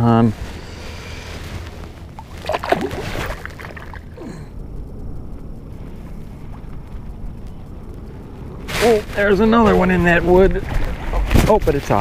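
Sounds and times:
water splashing and gurgling: 2.0 - 4.4.

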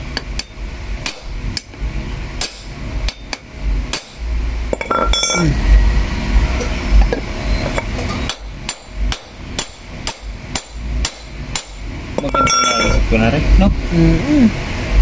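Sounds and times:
hammer striking metal driver: 2.4 - 5.4, 7.8 - 13.0.

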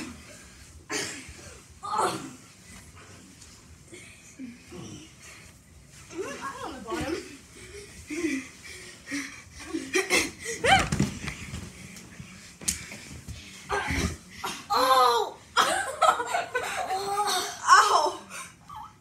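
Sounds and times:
boys laughing: 15.6 - 18.1.

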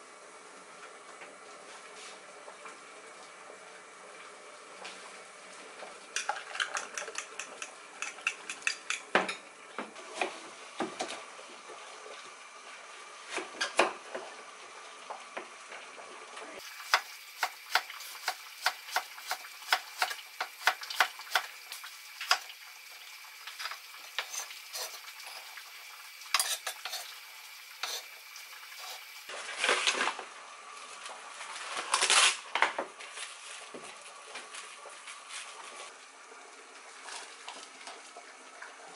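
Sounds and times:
plastic wrap crackling: 31.4 - 32.5.

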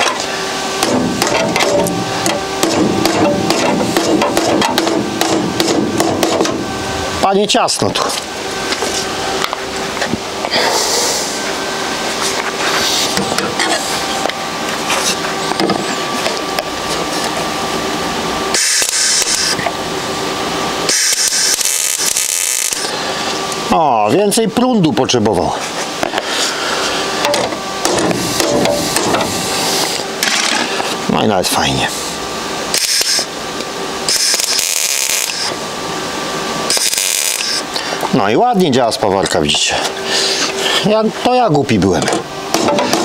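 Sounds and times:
welding arc crackling hiss: 18.0 - 23.6, 26.3 - 31.0, 31.8 - 33.4, 34.0 - 35.6, 36.6 - 38.1
welder arc crackling: 18.5 - 19.7, 20.8 - 23.6, 32.8 - 33.3, 34.0 - 35.6, 36.6 - 37.7.

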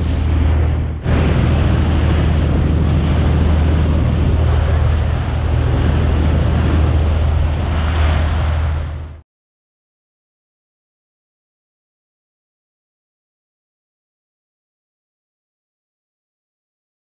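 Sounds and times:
boat engine droning: 0.0 - 9.2
water rushing past hull: 0.0 - 9.2
wind buffeting microphone: 0.0 - 9.2.

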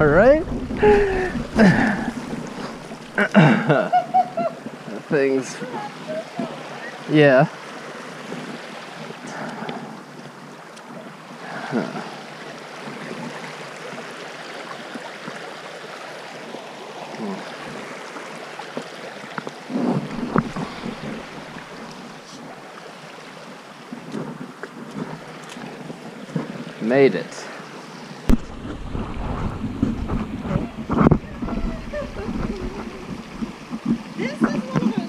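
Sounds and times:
wind on microphone: 0.0 - 5.0, 19.7 - 22.6, 23.9 - 26.8, 28.3 - 35.0
stream running over rocks: 0.0 - 35.0.

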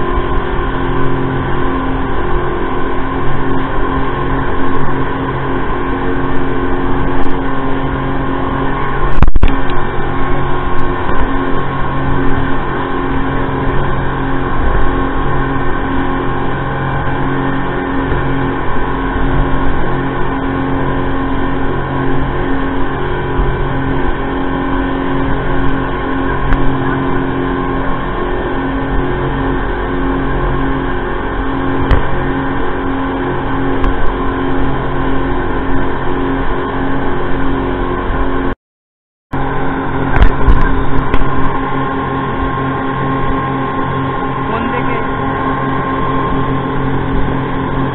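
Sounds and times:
water spray rushing off hull: 0.0 - 38.1
speedboat engine running: 0.0 - 38.6, 39.3 - 47.9.

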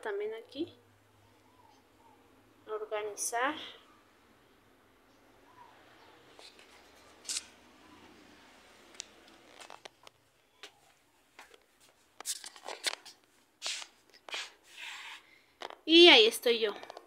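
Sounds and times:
faint scuffs and rustles: 9.4 - 15.3.

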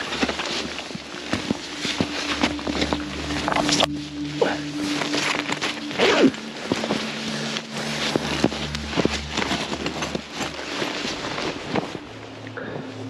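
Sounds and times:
background music with low notes: 0.0 - 13.0
snow crunching: 0.0 - 13.0
tent fabric rustling: 0.0 - 13.0.

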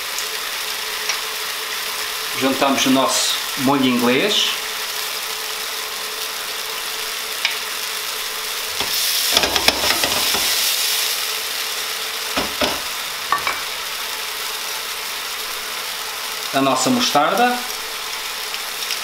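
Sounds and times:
mushrooms sizzling in a frying pan: 0.0 - 19.0
wooden spoon scraping a pan: 8.8 - 10.7.

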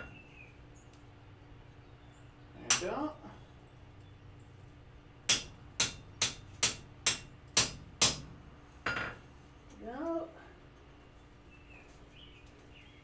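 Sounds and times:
hammer tapping chisel on steel: 5.3 - 8.3.

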